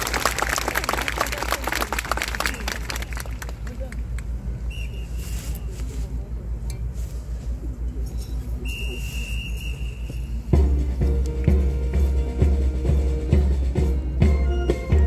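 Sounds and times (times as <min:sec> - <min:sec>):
whistle blasts: 0:04.6 - 0:05.7, 0:08.6 - 0:10.5
marching band drums crashing: 0:10.5 - 0:15.0.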